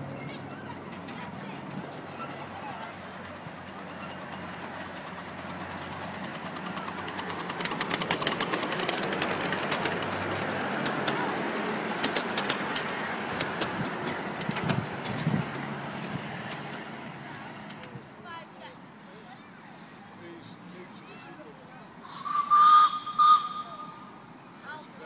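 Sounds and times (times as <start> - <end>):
wheels clicking over rail joints: 0.0 - 19.6
miniature steam train running: 0.0 - 25.0.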